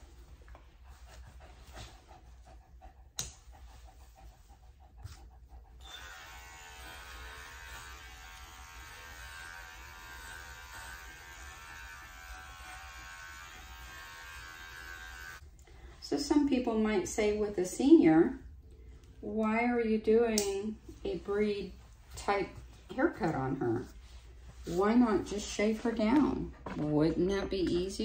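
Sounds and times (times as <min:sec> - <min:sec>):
electric clipper buzzing: 0:05.8 - 0:15.4.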